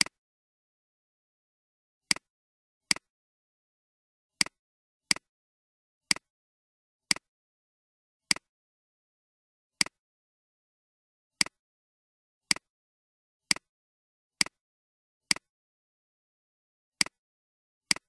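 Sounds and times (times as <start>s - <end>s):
computer mouse clicking: 11.4s - 11.6s, 14.4s - 14.6s, 17.0s - 17.2s.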